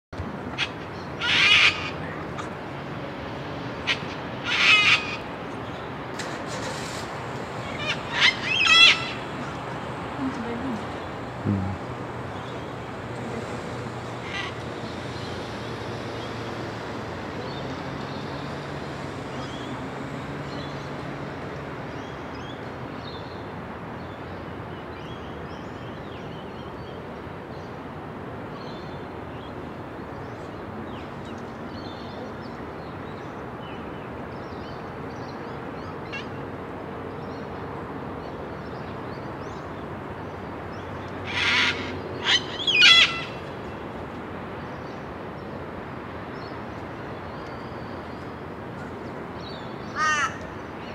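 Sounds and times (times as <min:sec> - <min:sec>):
cockatoo screech: 0:41.3 - 0:43.4.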